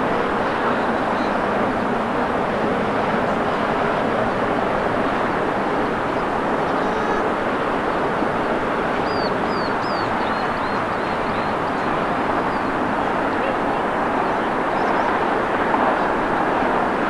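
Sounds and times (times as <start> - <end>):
jet engine noise: 0.0 - 17.0
bird chirps: 9.0 - 12.7.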